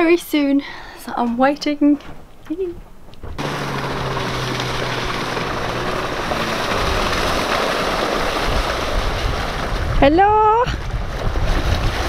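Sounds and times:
outboard motor running: 3.3s - 12.0s
rush of wind and water: 3.4s - 12.0s.

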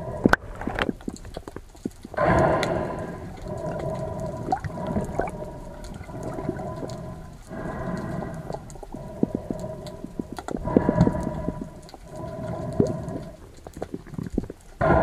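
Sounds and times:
clicks and crackles: 0.0s - 15.0s
underwater humming drone: 0.0s - 15.0s.

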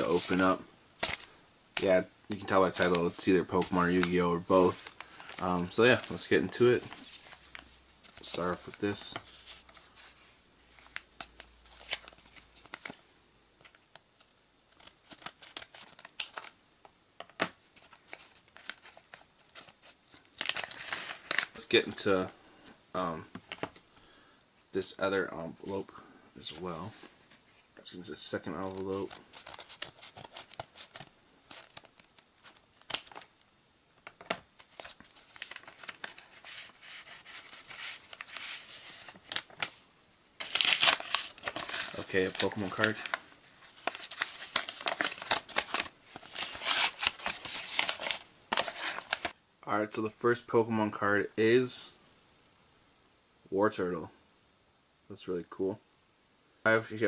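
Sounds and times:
paper envelope rustling: 0.0s - 13.0s, 13.6s - 16.6s, 17.8s - 22.2s, 28.3s - 33.4s, 34.0s - 39.8s, 40.4s - 49.4s.

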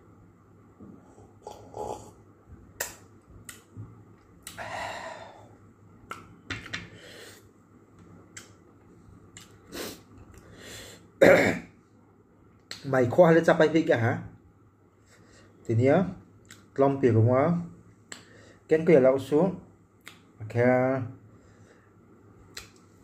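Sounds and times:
lip-smacks and mouth clicks: 2.8s - 4.6s, 6.0s - 6.4s, 8.3s - 8.6s, 9.3s - 9.6s, 12.6s - 12.9s, 16.4s - 16.7s, 20.0s - 20.3s, 22.5s - 22.9s.

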